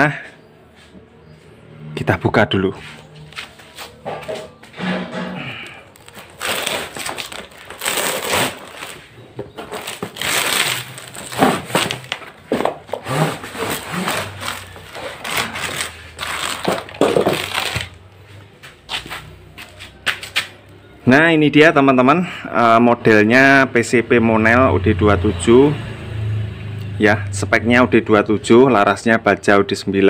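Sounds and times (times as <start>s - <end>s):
cardboard scraping and rustling: 6.0s - 18.1s.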